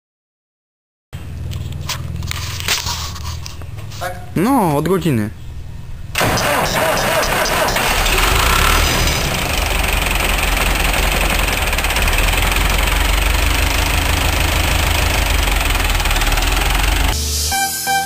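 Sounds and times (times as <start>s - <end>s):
tractor diesel engine idling: 6.1s - 17.2s.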